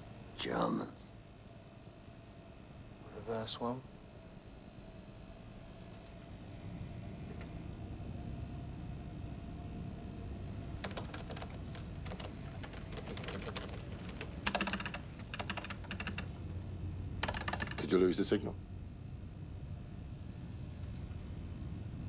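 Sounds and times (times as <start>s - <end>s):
equipment humming: 5.6s - 22.0s.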